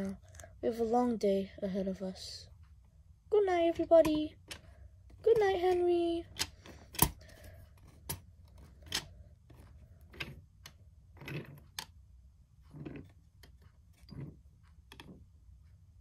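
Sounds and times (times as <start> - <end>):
plastic toy doors clicking shut: 6.3 - 7.2.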